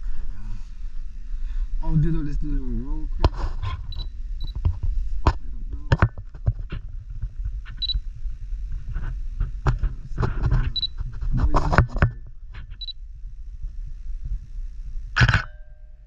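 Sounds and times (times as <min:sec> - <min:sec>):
camera beeping: 0:03.9 - 0:04.6, 0:07.7 - 0:08.0, 0:10.7 - 0:11.0, 0:12.7 - 0:13.0.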